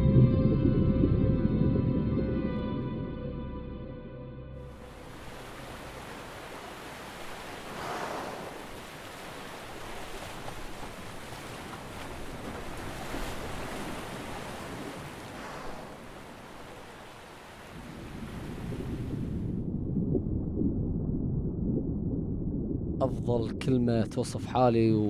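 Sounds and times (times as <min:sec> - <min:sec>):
sea water washing and sloshing: 0:04.7 - 0:19.7.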